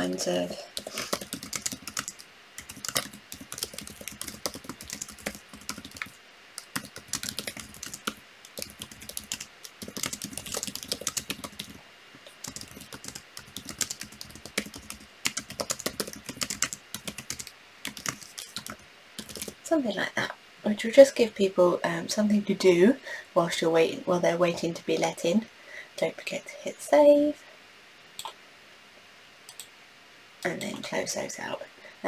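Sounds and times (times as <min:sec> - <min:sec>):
typing on computer keyboard: 0:00.8 - 0:19.6.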